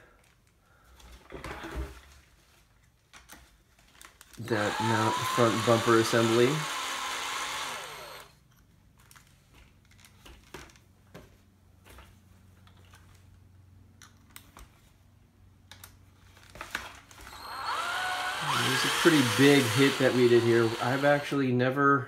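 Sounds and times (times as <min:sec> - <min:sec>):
cordless drill running: 0:04.4 - 0:08.4, 0:17.2 - 0:21.4.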